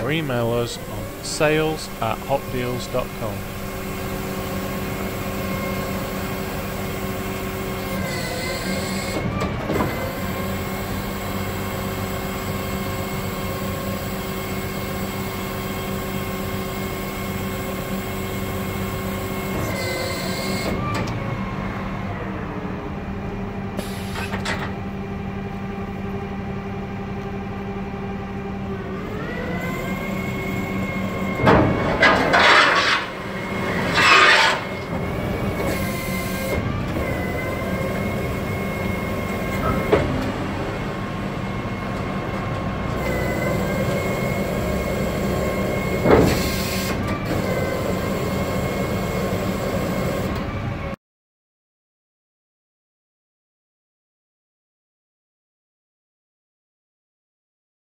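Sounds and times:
truck engine and hydraulic pump hum: 0.0s - 51.0s
harsh metallic scraping: 31.9s - 35.1s.

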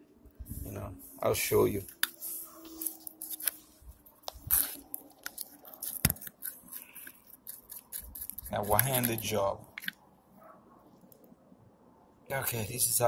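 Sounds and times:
tube clicks and crinkles: 4.3s - 10.0s.

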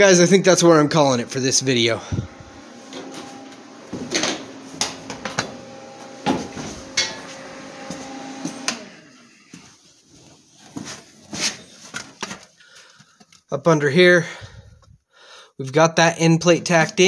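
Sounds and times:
steady hum with held tones: 1.2s - 9.6s
footsteps on concrete floor: 2.2s - 12.5s.

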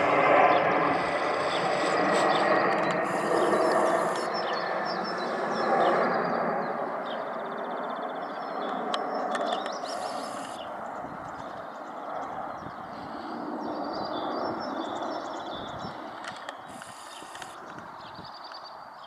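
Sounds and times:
jet engines rumbling overhead: 0.0s - 19.0s
birds chirping: 0.4s - 19.0s.

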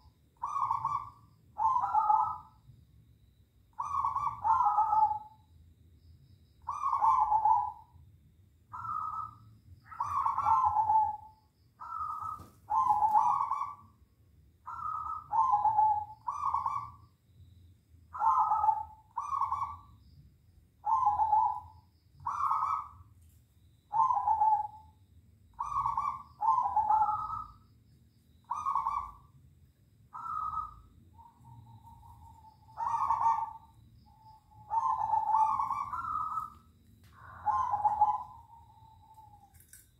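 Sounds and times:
doves cooing: 0.0s - 2.6s, 3.8s - 5.4s, 6.7s - 7.9s, 8.7s - 13.9s, 14.7s - 17.0s, 18.1s - 19.9s, 20.8s - 23.0s, 23.9s - 24.9s, 25.5s - 27.6s, 28.4s - 29.3s, 30.1s - 39.6s.

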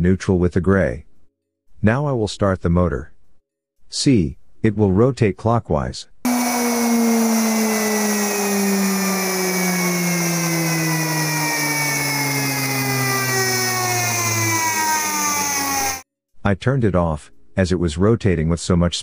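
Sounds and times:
electric motor whining: 6.3s - 16.0s.

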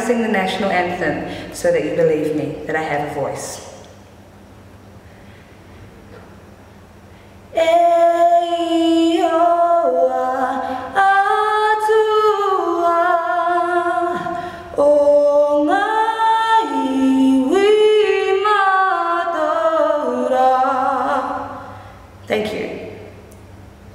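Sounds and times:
woman singing a cappella: 7.5s - 22.7s.

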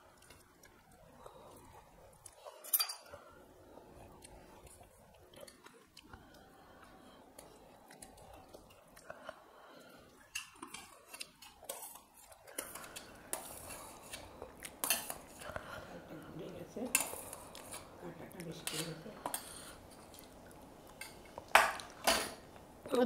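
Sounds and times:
soft chewing: 0.0s - 22.9s
steel spoon clinking on plates: 2.6s - 3.2s.

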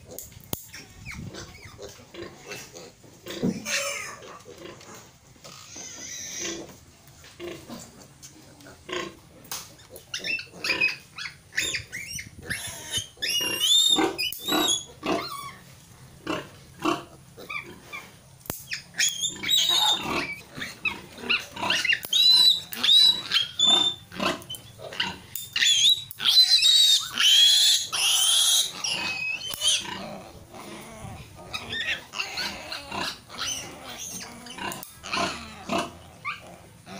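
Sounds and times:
piglet squealing: 0.7s - 2.7s, 3.6s - 4.4s, 5.5s - 6.6s, 10.0s - 15.6s, 17.4s - 36.9s.

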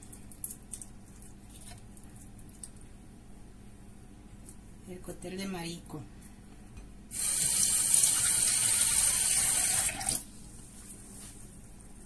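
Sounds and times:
tap water running into sink: 7.2s - 10.2s.

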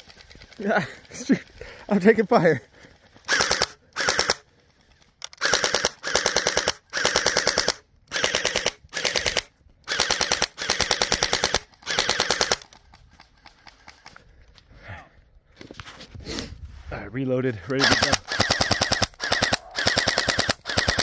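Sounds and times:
gel blaster firing rapid bursts: 3.3s - 4.4s, 5.4s - 12.6s, 17.8s - 21.0s.

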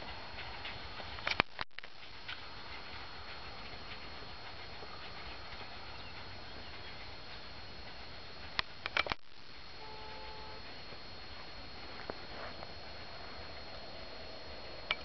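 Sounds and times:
distant steam train: 0.0s - 15.0s
open-air noise: 0.0s - 15.0s
sharp clicks: 1.1s - 2.4s, 8.5s - 9.4s.

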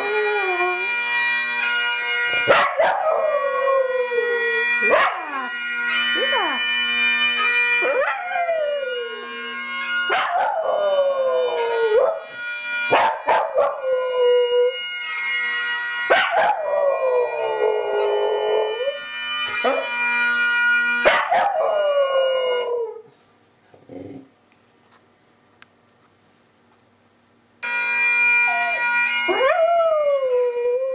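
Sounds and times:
dog howling: 0.0s - 0.9s, 2.4s - 5.5s, 7.8s - 12.3s, 12.9s - 14.8s, 16.1s - 19.0s, 21.1s - 23.0s
bagpipe music: 0.0s - 23.1s, 27.6s - 30.9s.

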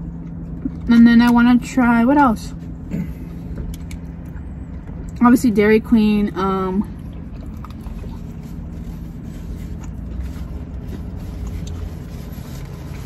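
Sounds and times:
car interior rumble: 0.0s - 13.0s
person chewing: 7.0s - 13.0s.

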